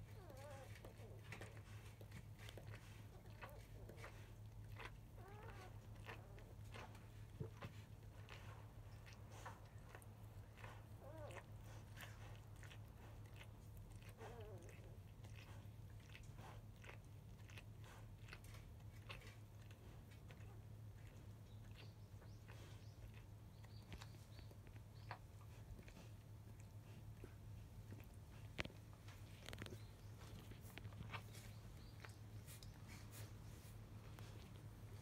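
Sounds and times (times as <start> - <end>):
puppies suckling wet smacking: 0.0 - 35.0
puppies squeaking: 0.2 - 1.0.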